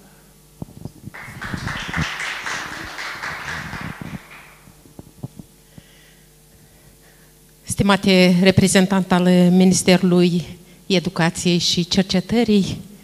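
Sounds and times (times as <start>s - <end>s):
audience applauding: 1.1s - 4.8s.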